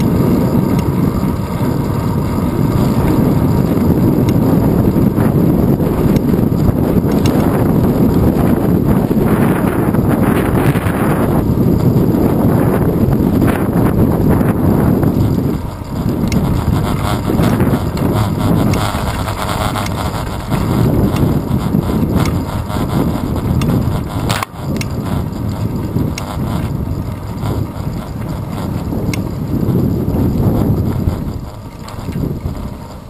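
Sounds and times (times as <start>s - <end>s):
bicycle tyre and road noise: 0.0s - 33.0s
wind buffeting microphone: 0.0s - 33.0s
sharp click: 24.3s - 25.0s.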